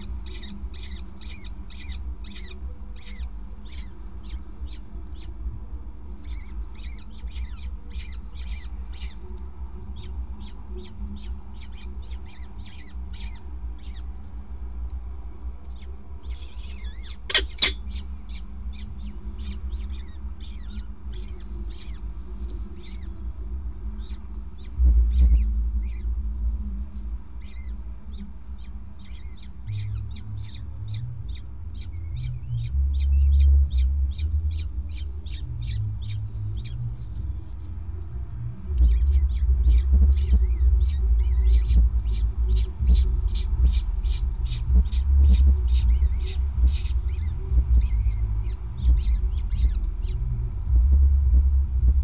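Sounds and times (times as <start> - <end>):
falcon chicks begging calls: 0.0 - 5.4, 6.2 - 9.2, 15.7 - 22.1, 24.0 - 26.1, 28.6 - 36.8, 38.8 - 50.4
steady low rumble: 0.0 - 52.0.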